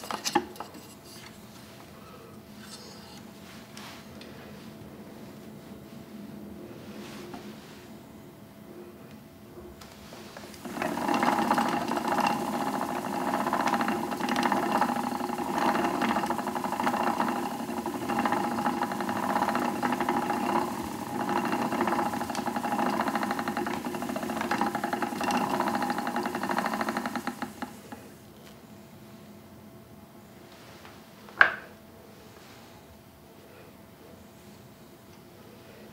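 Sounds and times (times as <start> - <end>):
spinning wheel clattering: 10.5 - 28.1.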